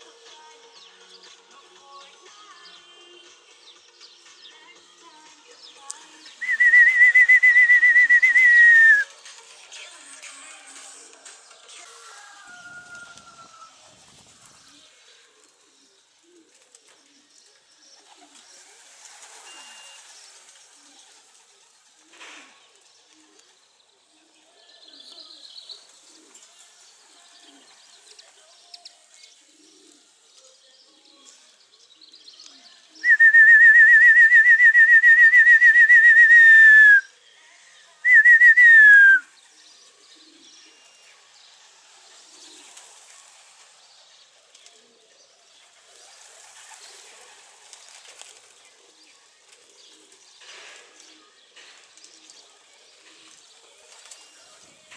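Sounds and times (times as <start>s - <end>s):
loud trilling whistle: 6.4s - 9.0s, 38.1s - 39.2s
small birds twittering: 39.2s - 54.9s.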